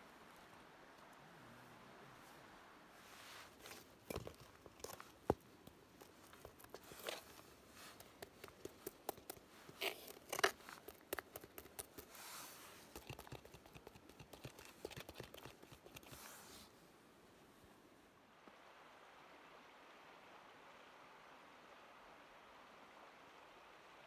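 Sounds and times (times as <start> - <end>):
shoes scraping and crinkling: 3.2 - 12.9.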